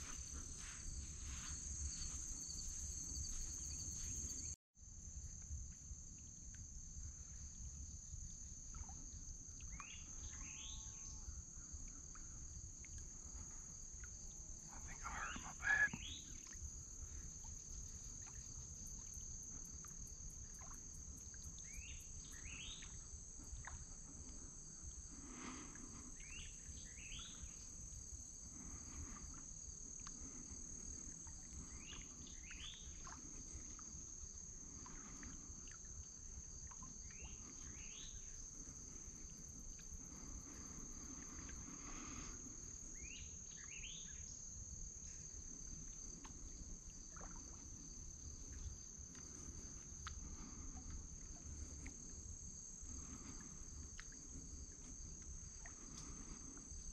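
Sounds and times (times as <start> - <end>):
high-pitched insect chorus: 0.0 - 4.6, 7.2 - 56.9
short bird calls: 14.8 - 16.3.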